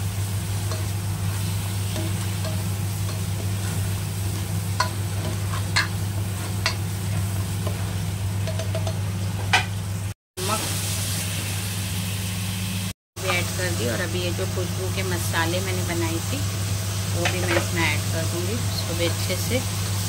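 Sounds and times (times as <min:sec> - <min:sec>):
masala sizzling in oil: 0:00.0 - 0:20.0
spatula tapping and scraping pan: 0:01.9 - 0:09.7.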